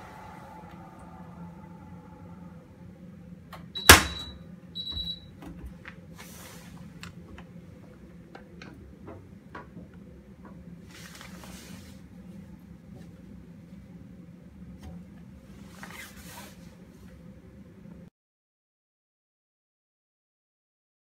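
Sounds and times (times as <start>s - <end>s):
washing machine hum: 0.0s - 18.1s
machine door clicks: 3.7s - 5.2s.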